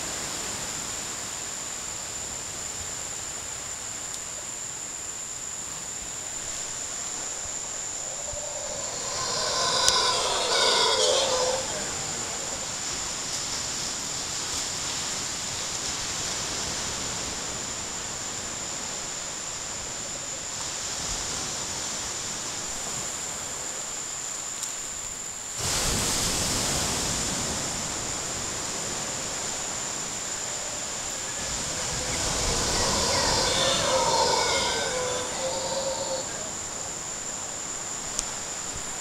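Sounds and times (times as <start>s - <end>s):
thin high-pitched whine: 7.6s - 13.3s, 30.2s - 37.0s
constant rushing noise: 7.6s - 15.0s, 29.1s - 37.0s.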